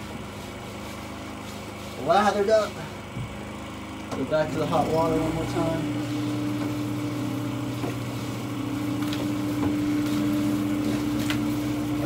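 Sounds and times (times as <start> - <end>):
hand sprayer hissing: 0.0 - 3.8, 4.7 - 12.0
steady mechanical hum: 0.0 - 12.0.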